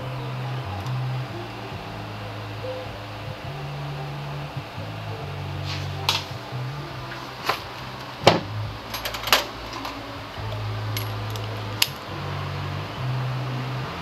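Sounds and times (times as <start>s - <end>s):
low steady hum: 0.0s - 14.0s
metal hand tools clinking: 8.9s - 10.0s, 10.9s - 12.0s.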